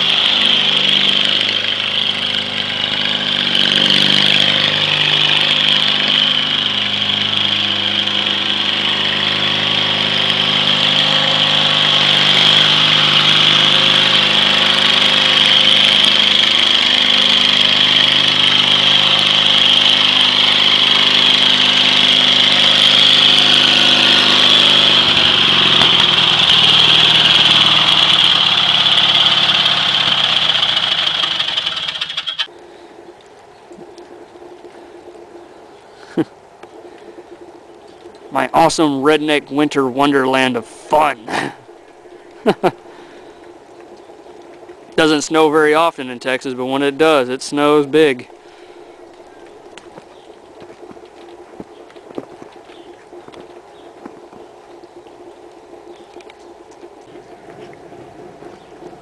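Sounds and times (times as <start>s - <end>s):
lawn tractor engine running: 0.0s - 32.5s, 38.3s - 43.6s, 44.9s - 52.9s
high-pitched whine: 0.0s - 59.0s.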